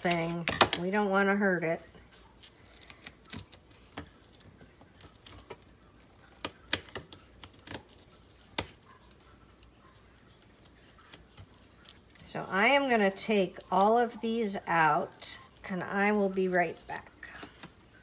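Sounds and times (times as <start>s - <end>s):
paper and plastic being handled: 0.0s - 0.9s.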